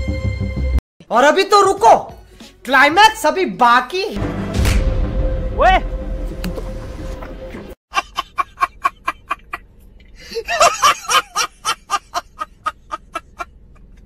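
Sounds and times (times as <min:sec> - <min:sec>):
man laughing hysterically: 0:07.9 - 0:09.6, 0:10.2 - 0:14.0.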